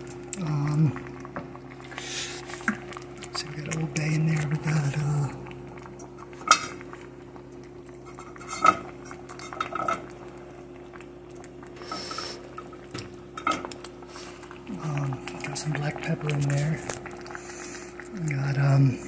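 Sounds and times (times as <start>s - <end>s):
steady low hum: 0.0s - 19.0s
kitchen items clinking against a pot: 8.0s - 10.1s.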